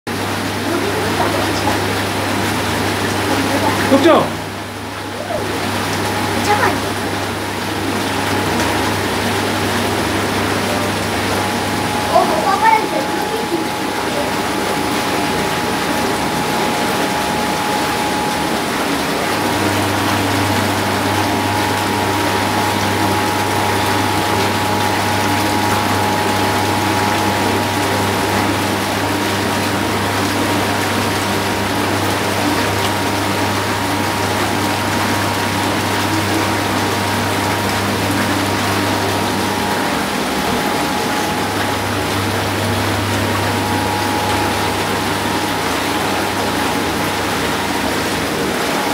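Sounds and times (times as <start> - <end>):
pump motor hum: 0.1 - 48.9
whirlpool jets bubbling water: 0.1 - 48.9
low hum: 7.7 - 29.5, 33.7 - 48.0.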